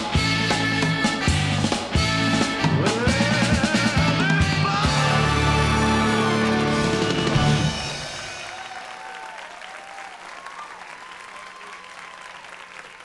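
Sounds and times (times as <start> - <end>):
show music: 0.0 - 9.0
audience applause: 5.6 - 13.0.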